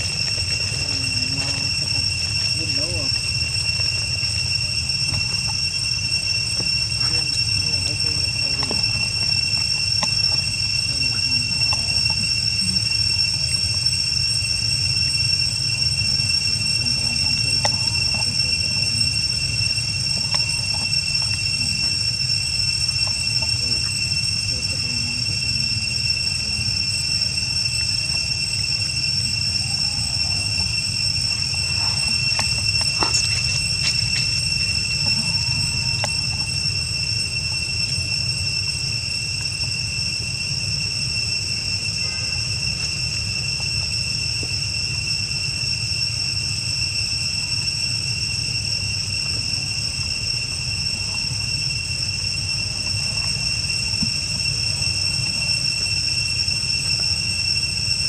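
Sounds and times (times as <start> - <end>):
high-pitched insect drone: 0.0 - 58.0.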